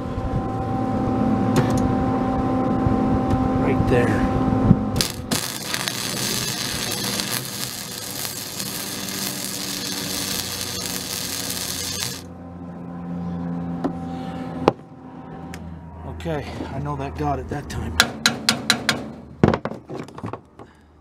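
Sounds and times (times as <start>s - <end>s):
low hum: 0.0s - 18.4s
welder arc crackling: 5.0s - 12.3s.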